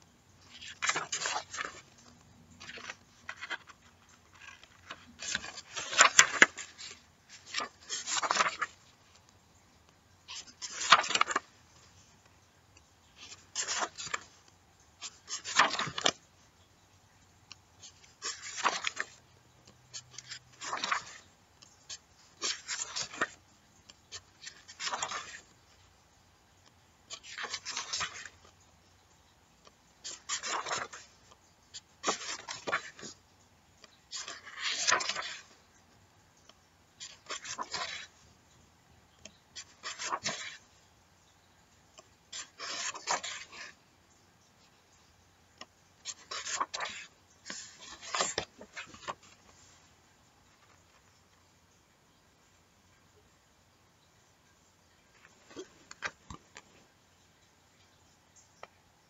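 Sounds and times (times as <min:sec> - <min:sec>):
paper pages turning: 0:00.4 - 0:16.3, 0:17.5 - 0:25.9, 0:27.0 - 0:28.6, 0:29.6 - 0:33.2, 0:33.8 - 0:35.8, 0:36.4 - 0:38.5, 0:39.1 - 0:40.8, 0:41.8 - 0:43.8, 0:45.6 - 0:49.8, 0:55.1 - 0:56.7.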